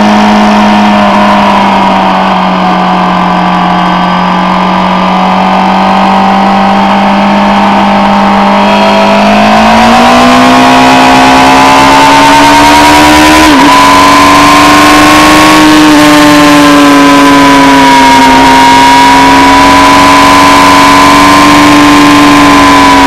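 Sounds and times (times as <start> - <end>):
motorcycle engine under load: 0.0 - 10.6.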